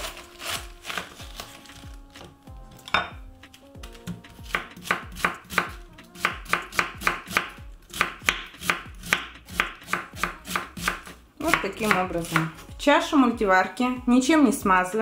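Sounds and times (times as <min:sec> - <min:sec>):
knife chopping cabbage on wooden board: 0:00.0 - 0:03.2, 0:03.8 - 0:12.6.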